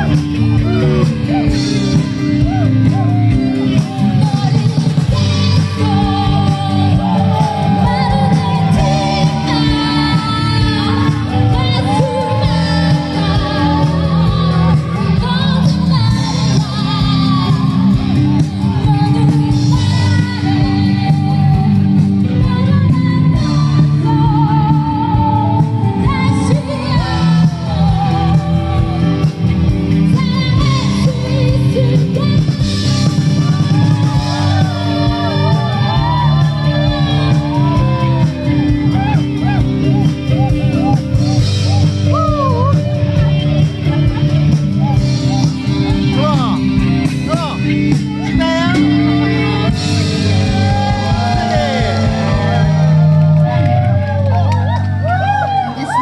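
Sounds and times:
live pop band playing: 0.0s - 56.0s
woman singing: 2.4s - 41.4s.

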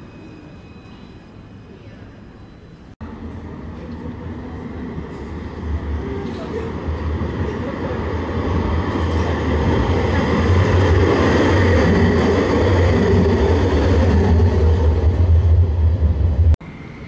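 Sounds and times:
tram passing with low rumble: 0.0s - 17.0s.

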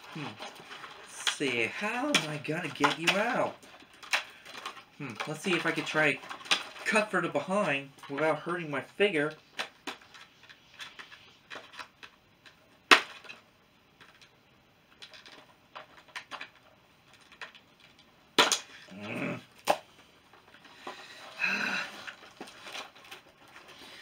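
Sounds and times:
box rustling: 0.0s - 12.0s, 15.0s - 24.0s
person grunting with effort: 18.9s - 19.5s, 21.4s - 22.1s.

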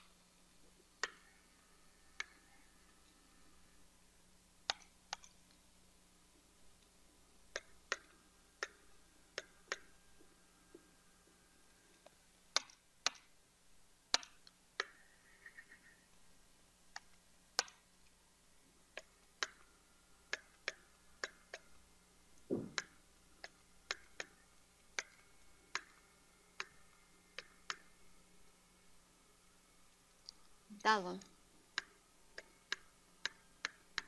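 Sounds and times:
dull thump: 22.5s - 22.8s.

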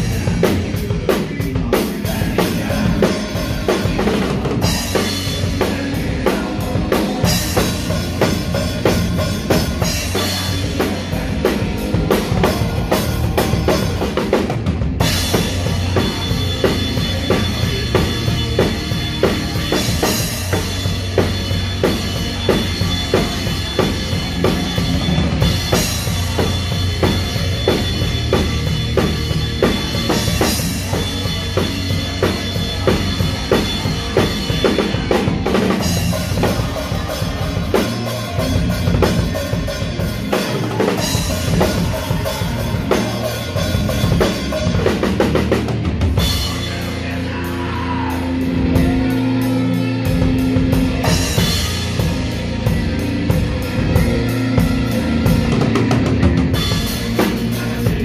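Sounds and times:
bass guitar: 0.0s - 58.0s
live rock band playing: 0.0s - 58.0s.

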